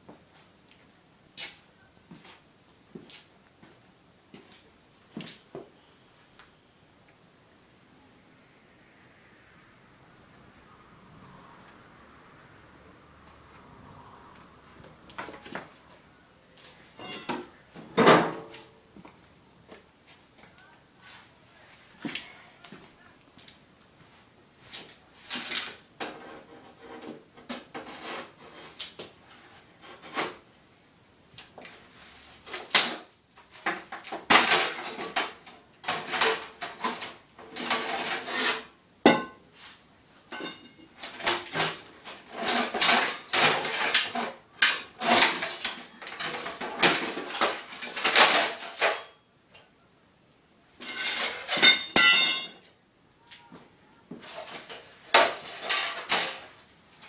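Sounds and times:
metal clanks and scrapes: 16.9s - 18.7s, 25.2s - 29.0s, 33.6s - 49.2s, 50.8s - 52.7s, 54.2s - 56.6s.

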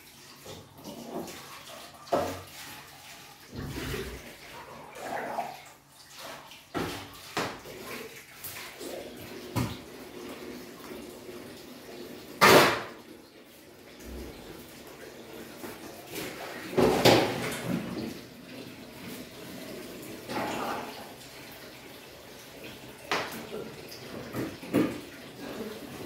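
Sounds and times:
tap water running into sink: 0.0s - 26.0s.

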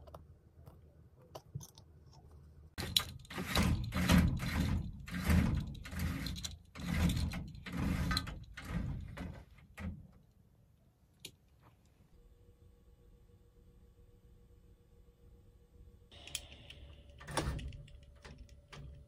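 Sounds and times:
window blind pulled by cord: 2.8s - 9.2s.

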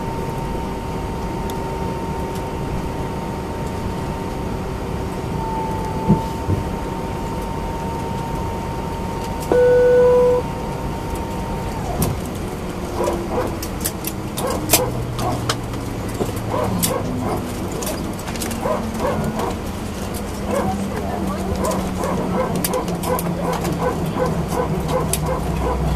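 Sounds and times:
jet engine whine winding down: 0.0s - 13.0s.

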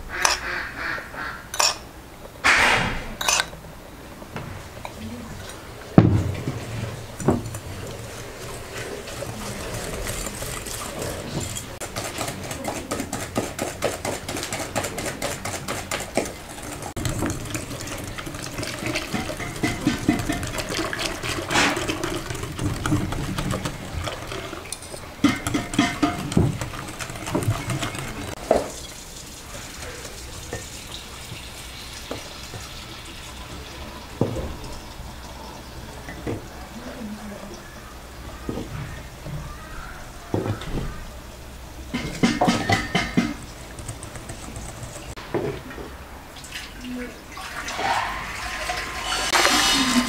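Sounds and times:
milk pouring: 5.8s - 12.5s, 13.9s - 35.3s, 46.4s - 50.0s
whisk clicking against glass bowl: 11.8s - 28.4s.

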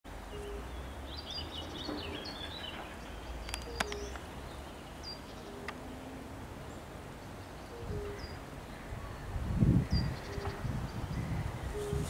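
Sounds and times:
small birds chirping: 0.2s - 12.0s
sharp clicks: 3.4s - 4.3s.

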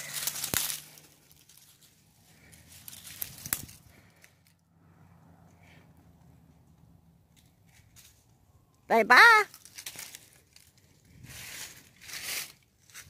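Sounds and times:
rustling in dry leaves: 0.0s - 4.6s, 9.5s - 13.0s.

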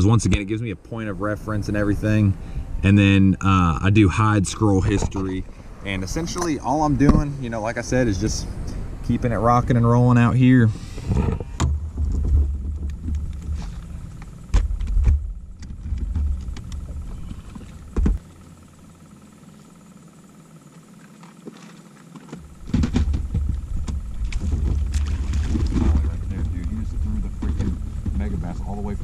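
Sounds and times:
wind buffeting microphone: 22.5s - 29.0s
sharp knocks: 22.6s - 26.7s.

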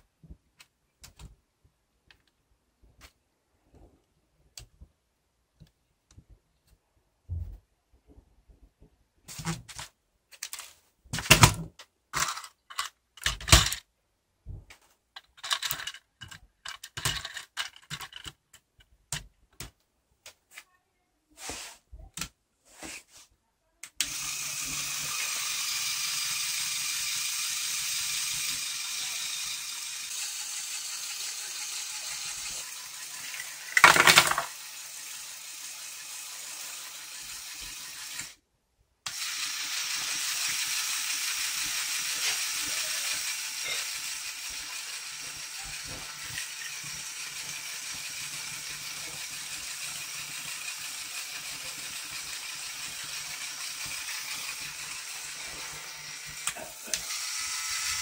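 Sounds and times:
plastic parts clicking: 10.4s - 13.8s, 15.2s - 19.8s, 33.3s - 34.5s
electric motor whirring: 24.0s - 38.4s, 39.1s - 58.0s
loud clatter: 33.4s - 34.5s.

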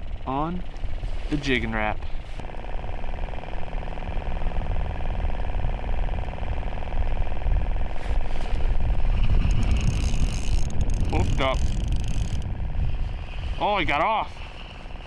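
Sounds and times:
pulsing motor drone: 0.0s - 15.0s
wind on microphone: 4.4s - 15.0s.

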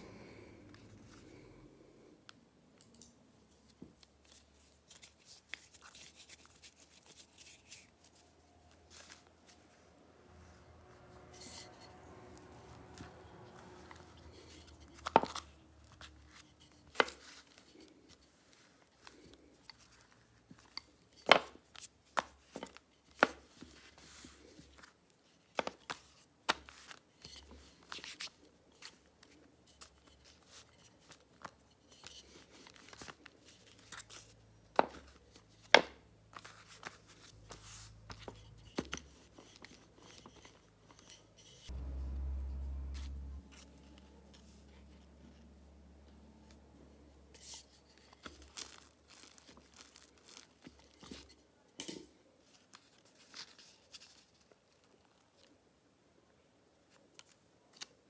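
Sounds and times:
low hum: 41.7s - 47.3s.

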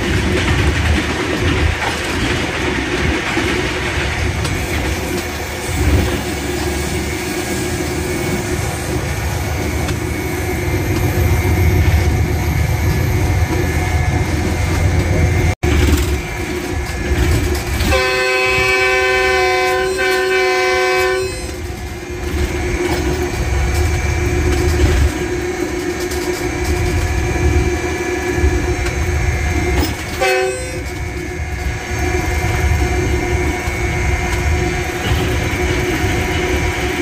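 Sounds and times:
locomotive engine rumble: 0.0s - 37.0s
wheels on rails: 0.0s - 37.0s
locomotive horn: 17.7s - 21.7s, 29.9s - 31.2s.

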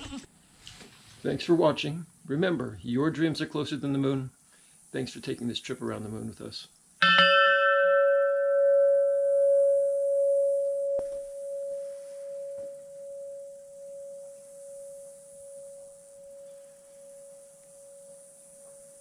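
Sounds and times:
tube wind chime ringing: 7.0s - 19.0s.

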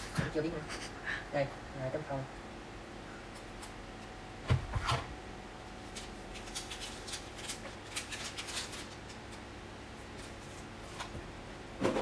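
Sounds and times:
plastic wrapping crinkling: 5.8s - 9.4s.

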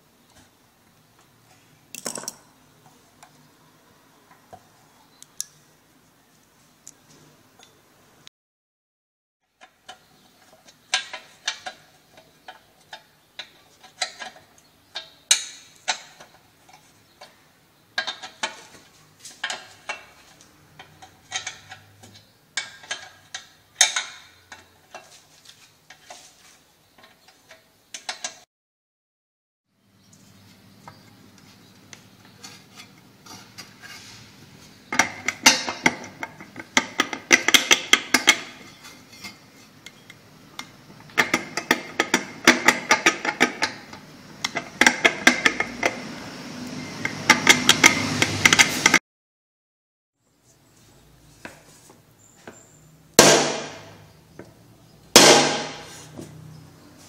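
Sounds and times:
metal parts clinking: 1.9s - 2.5s.

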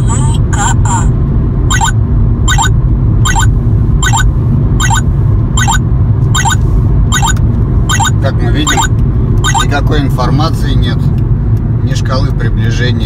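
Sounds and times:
road rumble inside car: 0.0s - 13.0s
stepped multi-tone alert beeps: 1.7s - 2.7s, 3.3s - 5.0s, 5.6s - 5.8s, 6.4s - 9.7s.

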